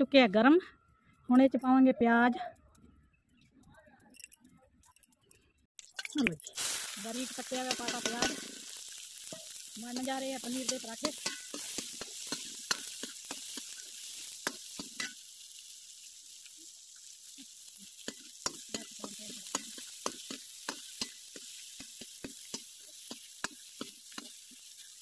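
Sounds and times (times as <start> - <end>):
onions sizzling in hot oil: 6.0 - 25.0
metal ladle scraping pan: 7.4 - 15.2.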